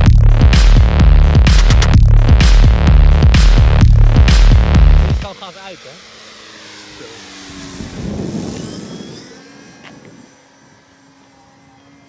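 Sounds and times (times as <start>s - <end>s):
model plane motor passing by: 5.2s - 12.0s.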